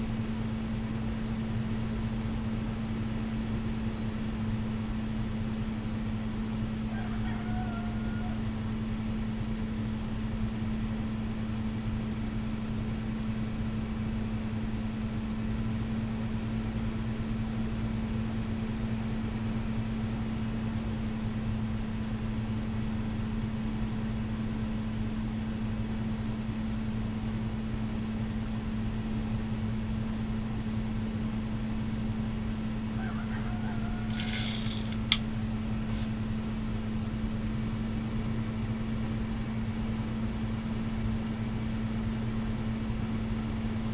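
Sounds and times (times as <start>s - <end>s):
low electric hum of machinery: 0.0s - 43.9s
short clatter: 33.8s - 35.3s.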